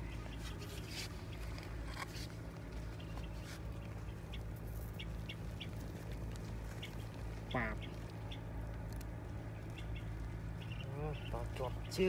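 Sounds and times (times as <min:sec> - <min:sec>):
steady low hum: 0:00.0 - 0:12.0
bird chirping: 0:02.8 - 0:12.0.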